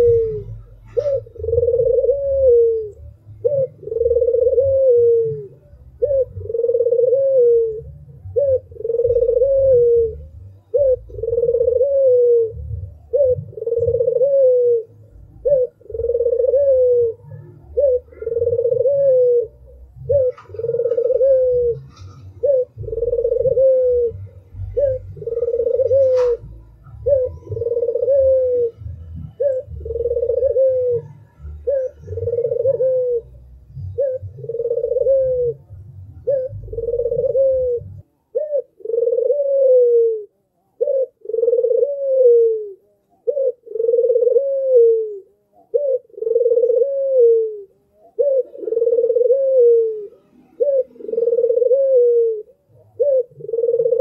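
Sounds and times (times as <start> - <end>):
dove cooing: 0.0 - 54.0
low rumble: 12.4 - 14.0, 21.7 - 32.4, 35.2 - 38.1.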